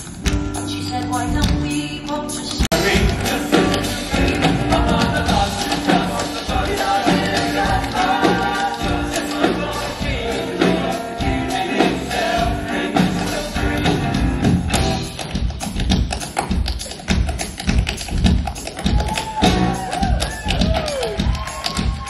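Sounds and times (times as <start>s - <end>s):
live band music: 0.0s - 22.0s
steady drum beat: 1.2s - 22.0s
men singing: 2.7s - 14.2s.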